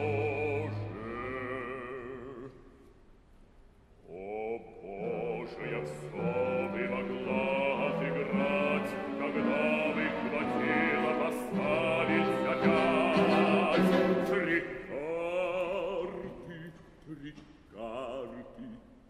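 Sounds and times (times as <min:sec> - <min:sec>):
baritone singing opera: 0:00.0 - 0:02.8, 0:04.0 - 0:19.0
orchestra playing: 0:05.0 - 0:14.8.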